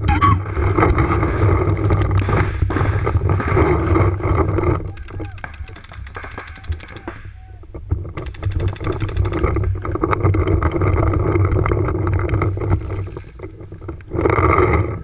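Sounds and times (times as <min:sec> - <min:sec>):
paintball markers firing: 0:04.6 - 0:07.3.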